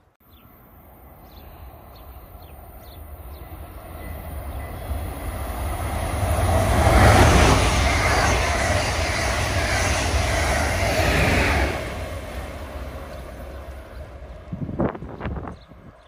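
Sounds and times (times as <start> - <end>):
train rumbling on rails: 0.3 - 16.0.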